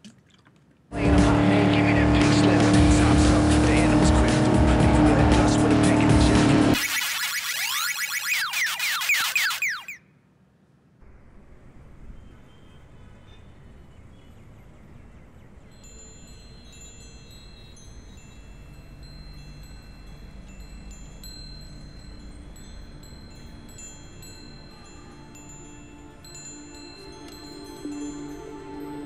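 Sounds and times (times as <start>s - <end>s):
metal wind chime tinkling: 15.7s - 29.0s.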